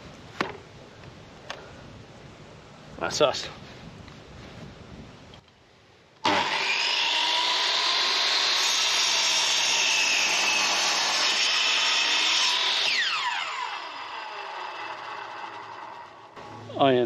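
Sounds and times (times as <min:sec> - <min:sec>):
miter saw cutting wood: 0:06.2 - 0:16.7.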